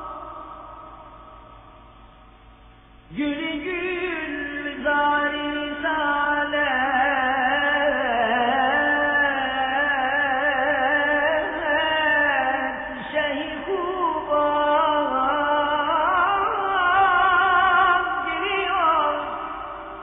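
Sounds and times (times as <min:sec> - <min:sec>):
man singing ornamented lines: 0:00.0 - 0:01.3, 0:03.1 - 0:20.0.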